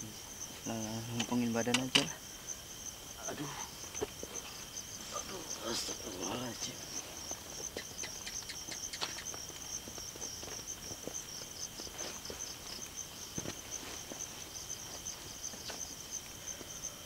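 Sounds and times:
insects trilling: 0.0 - 17.0
steady high insect tone: 0.0 - 17.0
light clicks and knocks: 1.1 - 2.2.

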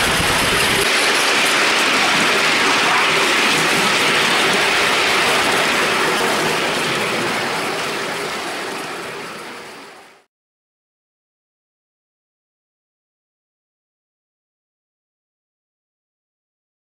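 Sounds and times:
steam locomotive rushing and clattering: 0.0 - 10.3.

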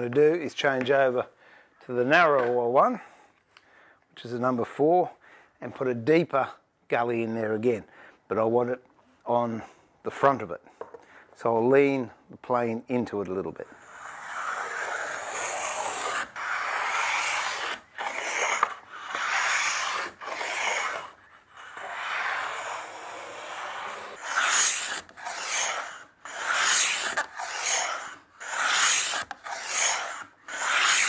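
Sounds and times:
moulding plane rasping along wood: 13.7 - 31.0.

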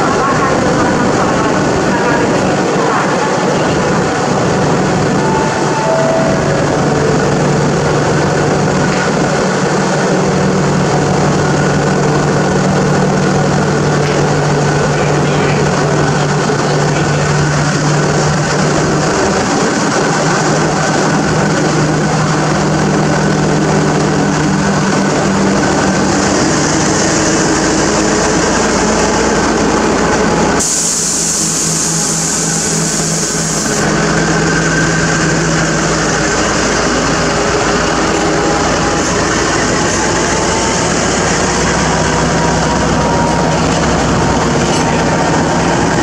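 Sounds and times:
locomotive diesel engine running: 0.0 - 46.0
train coaches rumbling on rails: 0.0 - 46.0
loud hiss: 30.6 - 33.8.

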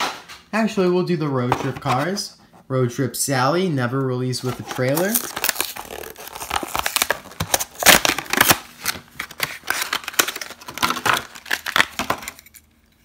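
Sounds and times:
plastic packaging tearing and crinkling: 4.4 - 12.7.

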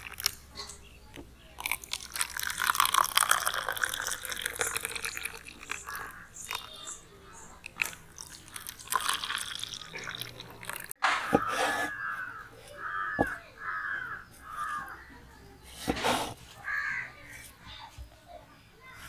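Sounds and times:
juice pouring into plastic cups: 0.0 - 0.5, 1.5 - 6.9, 7.5 - 11.0
crow cawing: 11.2 - 15.1, 16.6 - 17.3.

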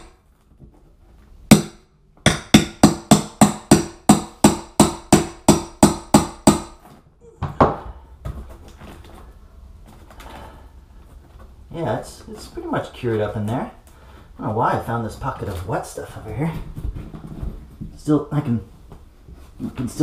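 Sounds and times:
hammer striking metal scraper: 1.5 - 6.8.

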